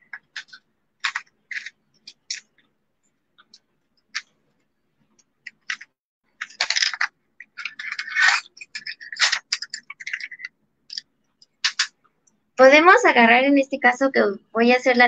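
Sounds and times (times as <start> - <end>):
pencils clicking and rattling in tin: 0.1 - 2.6, 5.5 - 11.9.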